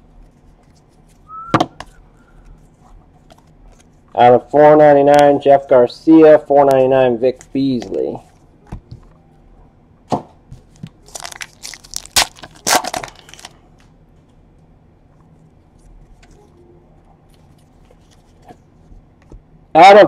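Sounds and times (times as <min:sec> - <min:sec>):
foil wrapper tearing and crinkling: 0:11.0 - 0:13.6.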